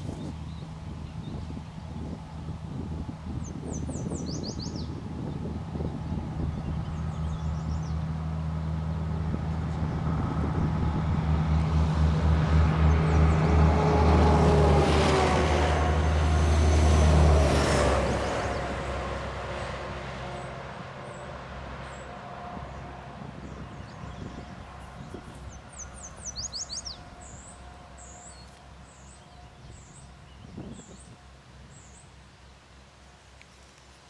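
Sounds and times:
vehicle driving past: 5.8 - 30.1.

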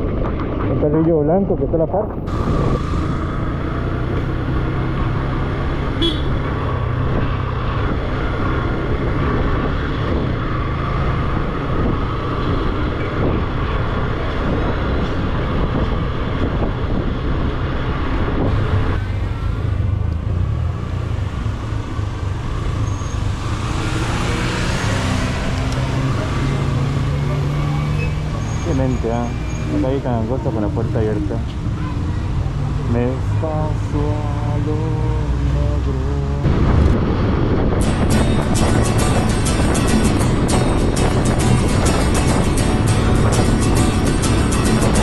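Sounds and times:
road and traffic noise: 0.0 - 45.0
motorcycle engine droning: 2.2 - 14.4.

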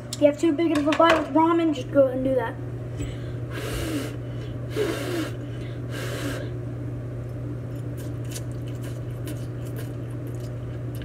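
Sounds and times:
person blowing on food: 3.5 - 6.6.

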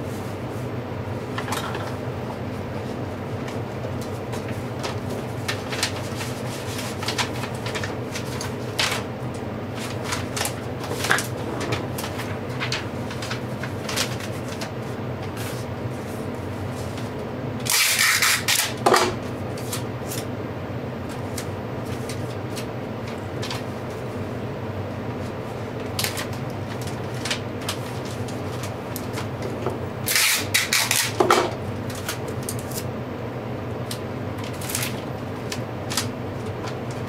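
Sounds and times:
steady background hum: 0.0 - 37.0.

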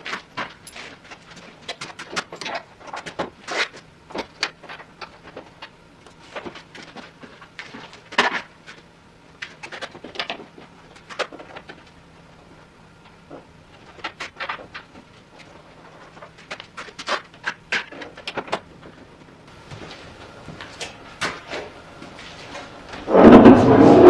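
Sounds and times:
tools and metal parts clanking: 0.0 - 3.6.

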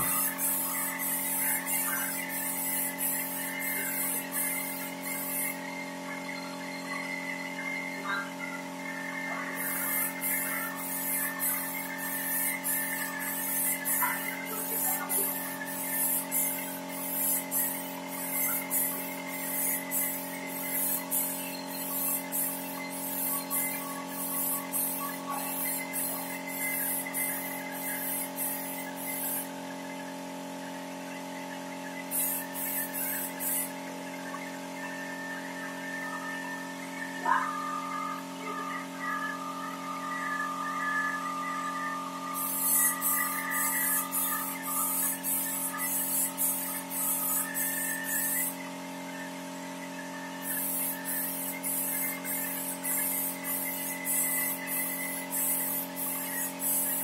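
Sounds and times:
spray gun air hisses: 0.0 - 5.6, 9.6 - 29.5, 32.1 - 33.8, 42.3 - 48.6, 50.4 - 57.0
motor hum: 0.0 - 57.0.

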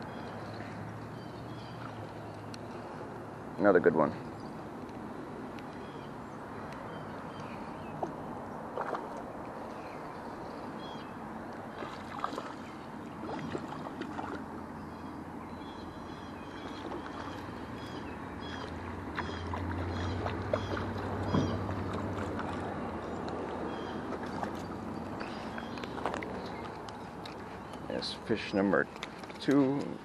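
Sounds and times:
river flowing: 0.0 - 30.0
fish splashing: 7.2 - 15.3, 16.0 - 30.0.

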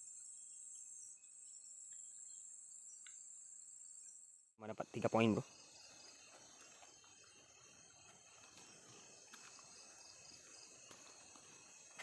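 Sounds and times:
crickets and night insects chirring: 0.0 - 12.0.

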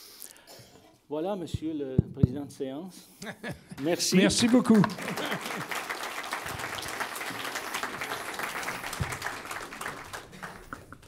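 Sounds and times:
crowd applauding: 3.8 - 11.0.

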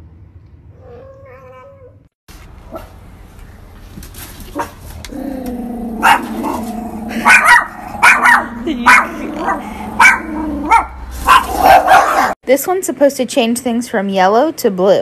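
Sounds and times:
cat meowing: 0.8 - 2.0.

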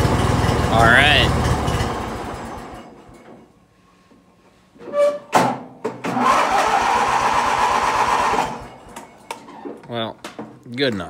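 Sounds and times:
mower engine running: 0.0 - 3.1, 6.2 - 8.9
starter whine: 0.0 - 3.2, 6.1 - 9.0.

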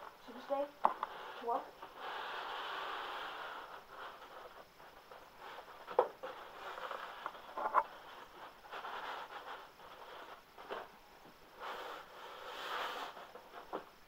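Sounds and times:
cardboard box scraping and sliding: 11.6 - 13.8.

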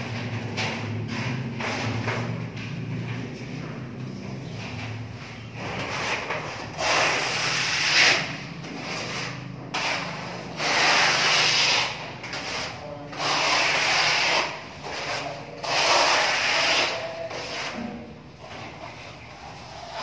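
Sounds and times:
plastering tool scraping wall: 0.0 - 2.5, 4.5 - 20.0.

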